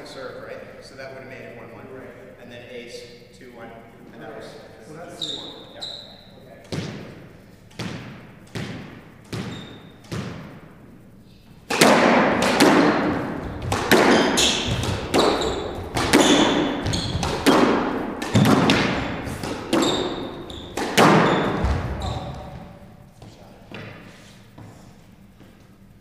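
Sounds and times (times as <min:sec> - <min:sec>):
shoe squeaks on floor: 0:05.1 - 0:06.4, 0:09.4 - 0:10.0, 0:14.1 - 0:17.5, 0:19.1 - 0:22.8
rackets hitting squash ball: 0:05.2 - 0:25.8
squash ball bouncing on wood floor: 0:06.6 - 0:10.6, 0:11.7 - 0:22.9
ball smacking off walls: 0:11.7 - 0:22.8.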